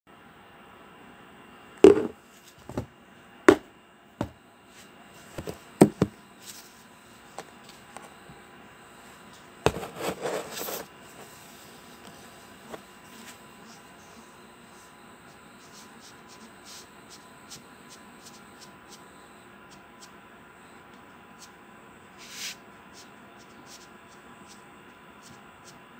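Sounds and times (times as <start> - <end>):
glass jar and lid knocking: 1.8 - 2.1.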